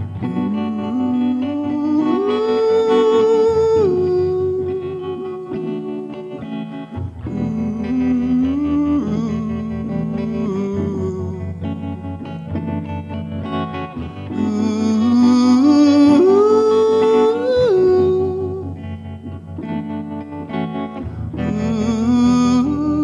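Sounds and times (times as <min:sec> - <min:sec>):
man singing into a microphone: 0:00.0 - 0:06.1, 0:07.2 - 0:11.8, 0:14.3 - 0:18.8, 0:21.4 - 0:23.0
electric guitar: 0:00.0 - 0:23.0.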